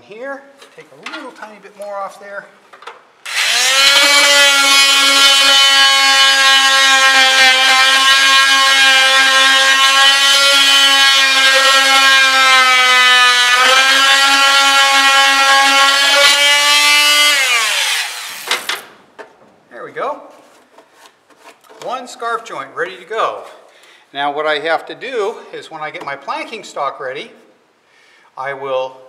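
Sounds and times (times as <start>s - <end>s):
oscillating multi-tool cutting wood: 3.3s - 18.7s.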